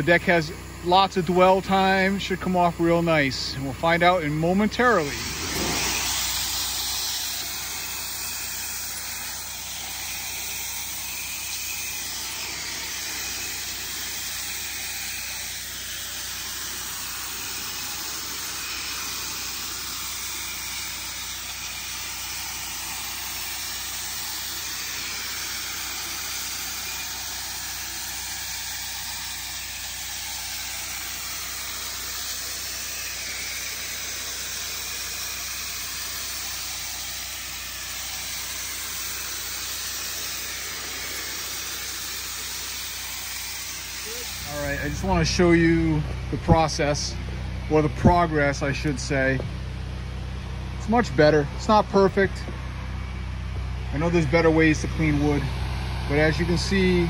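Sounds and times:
pressure washer spray hissing: 0.0s - 45.8s
engine hum: 0.0s - 57.0s.

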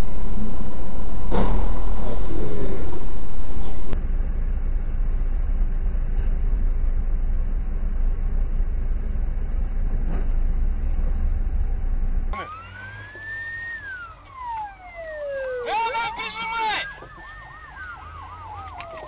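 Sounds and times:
moving vehicle rumble: 0.0s - 19.0s
siren wailing: 12.4s - 19.0s.

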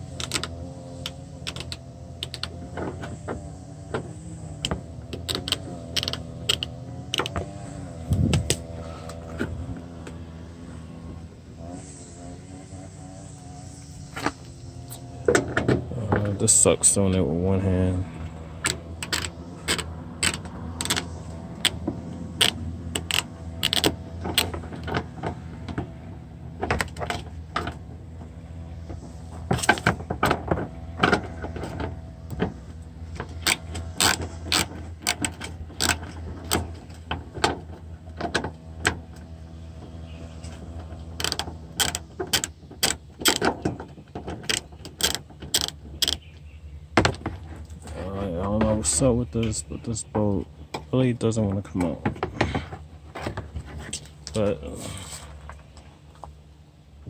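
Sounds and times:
hand ratchet clicking: 0.1s - 2.6s, 4.6s - 7.4s, 18.6s - 21.8s, 22.4s - 24.6s, 33.2s - 36.6s, 41.2s - 43.5s, 44.4s - 46.2s.

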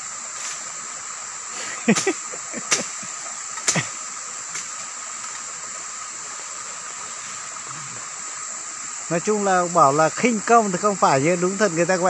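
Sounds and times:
insects droning: 0.0s - 12.0s.

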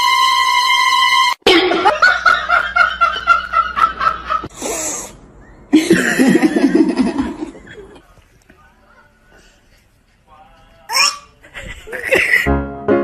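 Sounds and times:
person laughing: 5.7s - 8.0s, 11.4s - 12.5s.

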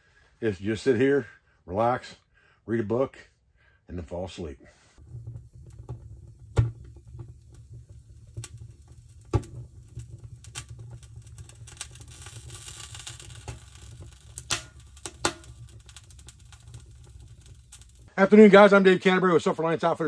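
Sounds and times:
low steady fire rumble: 5.0s - 20.0s
wood fire crackling and popping: 5.0s - 20.0s.

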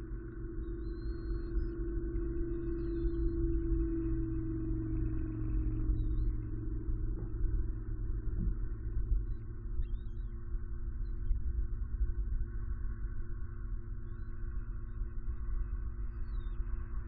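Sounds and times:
ambient music sustained tones: 0.0s - 11.3s
low rumble: 0.0s - 17.0s.

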